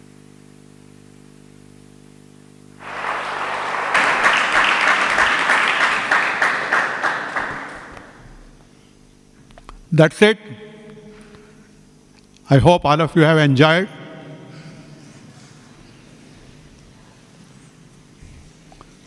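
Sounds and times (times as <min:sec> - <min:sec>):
audience clapping: 0:02.8 - 0:08.6.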